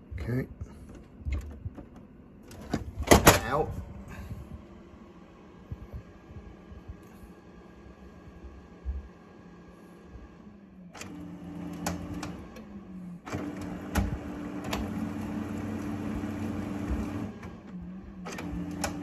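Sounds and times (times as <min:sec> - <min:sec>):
printer mechanism humming: 0:00.0 - 0:19.0
printer clicks: 0:18.3 - 0:19.0.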